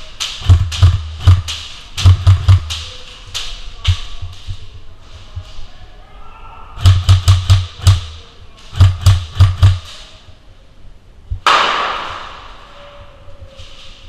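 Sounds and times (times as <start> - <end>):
airsoft gun shots: 0.4 - 2.8, 6.8 - 8.2, 8.8 - 9.9, 11.4 - 12.5.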